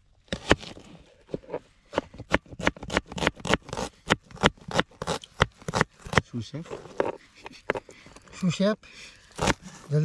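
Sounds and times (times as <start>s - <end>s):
knife chopping onion on board: 1.9s - 6.3s.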